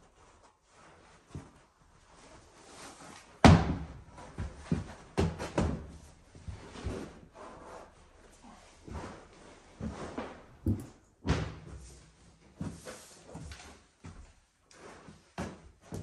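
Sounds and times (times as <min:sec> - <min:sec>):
light knocks and thuds: 0:10.6 - 0:11.0.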